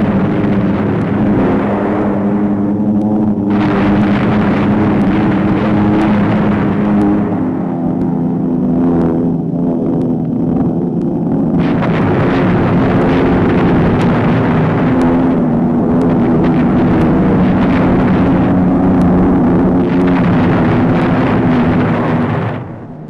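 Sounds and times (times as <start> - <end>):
bomb explosions rumbling: 0.0 - 23.0
bomber engines droning: 0.0 - 23.0.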